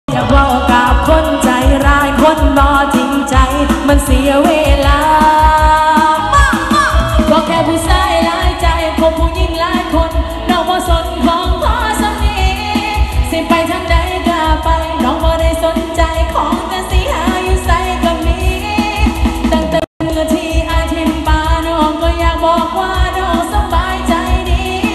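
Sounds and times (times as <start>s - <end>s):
amplified music with thumping beat: 0.1s - 24.9s
woman singing into microphone: 0.1s - 24.9s.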